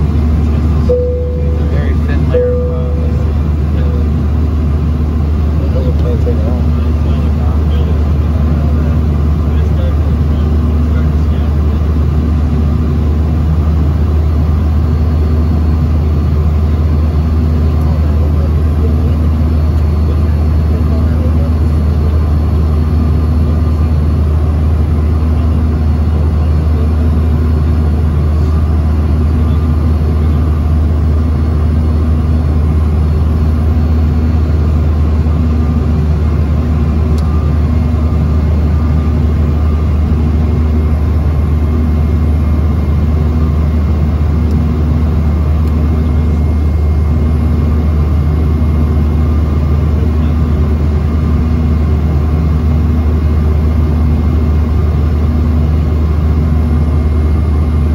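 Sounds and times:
airliner cabin drone: 0.0 - 57.9
faint steady tones: 0.8 - 4.0.

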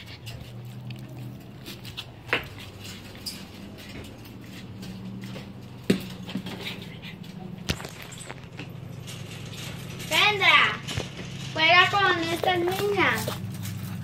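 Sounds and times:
dog panting: 0.0 - 7.6.

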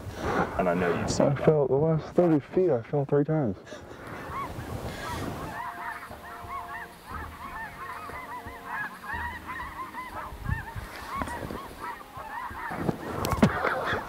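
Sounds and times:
geese honking in flight: 3.7 - 14.0.

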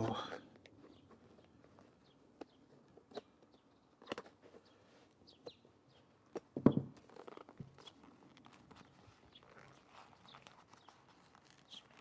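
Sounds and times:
small clicks and creaks: 6.3 - 12.0.

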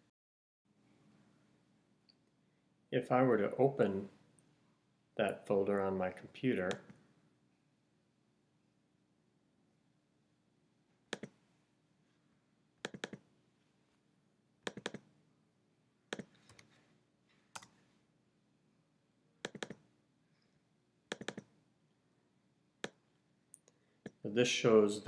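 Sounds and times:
computer mouse clicking: 6.7 - 7.0, 11.1 - 11.4, 12.8 - 13.2, 14.6 - 15.1, 16.1 - 16.7, 17.5 - 17.8, 19.4 - 19.8, 21.1 - 21.5, 22.8 - 23.0.

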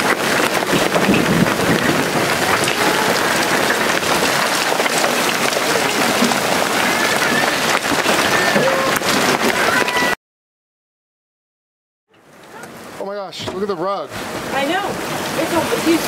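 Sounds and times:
heavy rain hiss: 0.0 - 9.4, 12.5 - 16.0
hailstones ticking: 0.0 - 10.0, 12.2 - 16.0.

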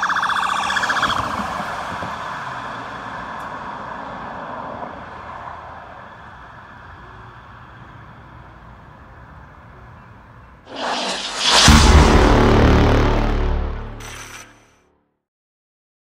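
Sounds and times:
street ambience: 0.0 - 12.6
music: 11.2 - 15.2.

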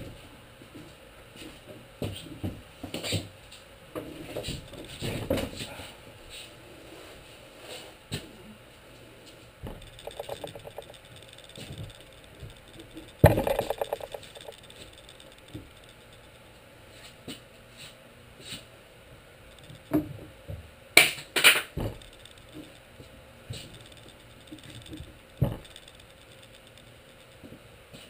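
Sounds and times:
quick rattling: 9.7 - 16.4, 21.8 - 22.8, 23.6 - 27.4
sharp clacks: 9.7 - 16.4, 19.5 - 20.0, 21.0 - 22.9, 23.6 - 27.5.

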